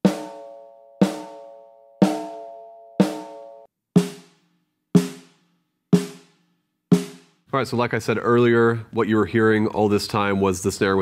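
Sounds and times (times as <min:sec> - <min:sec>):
snare drum hits: 0:00.0 - 0:01.4.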